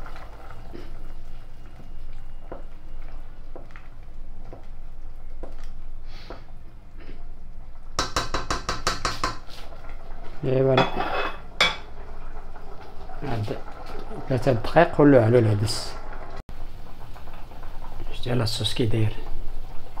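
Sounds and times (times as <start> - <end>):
spoon knocking on metal pot rim: 8.0 - 9.5.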